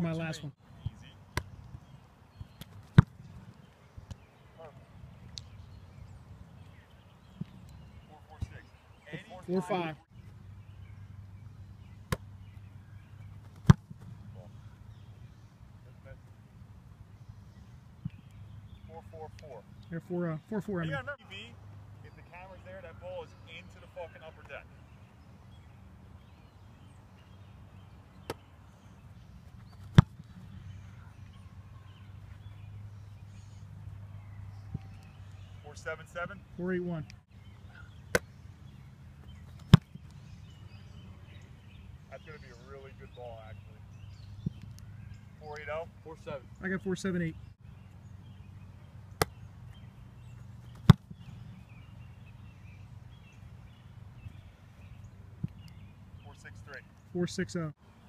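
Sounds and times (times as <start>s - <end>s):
foot kicking football: 0.8s - 3.3s, 13.4s - 14.4s, 29.5s - 30.7s, 39.2s - 40.1s, 50.6s - 51.4s
ball landing thump: 13.5s - 14.1s, 29.7s - 30.2s, 50.7s - 51.2s
foot thudding against football: 29.6s - 30.3s, 50.7s - 51.2s.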